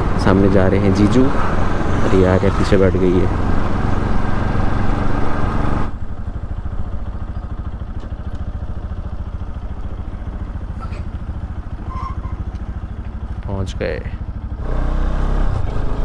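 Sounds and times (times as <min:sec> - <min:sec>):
wind and road rush: 0:00.0 - 0:16.0
motorcycle engine idling: 0:05.9 - 0:14.6.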